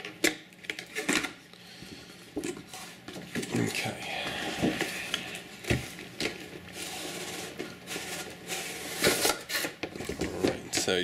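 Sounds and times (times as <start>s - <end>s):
cardboard rustling and scraping: 4.4s - 11.0s.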